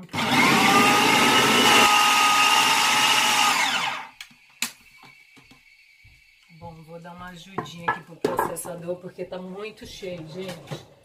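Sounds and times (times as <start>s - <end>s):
food processor motor whine: 0.0s - 4.3s.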